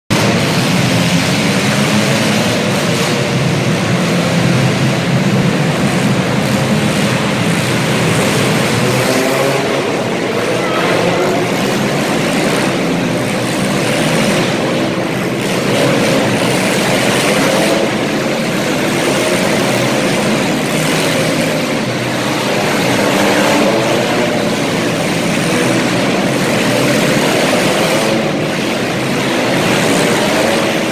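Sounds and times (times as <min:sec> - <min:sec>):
car engines revving: 0:00.0 - 0:30.9.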